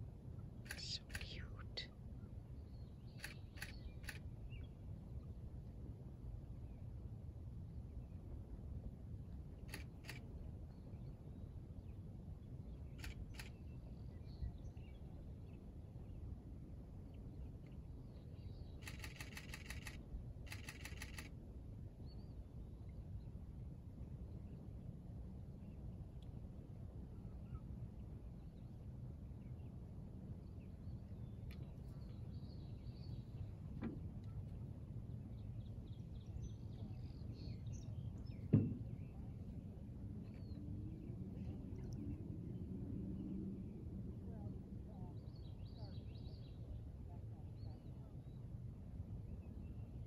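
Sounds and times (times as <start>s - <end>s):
low background rumble: 0.0s - 50.0s
faint high bird chirps: 0.6s - 1.8s, 2.7s - 4.7s, 13.0s - 15.0s, 18.4s - 21.3s
bird chirps: 18.8s - 21.2s.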